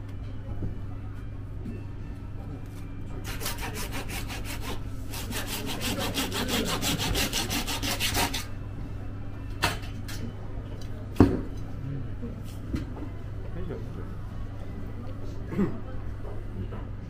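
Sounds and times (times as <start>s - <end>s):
blade sawing through fish: 3.2s - 8.5s.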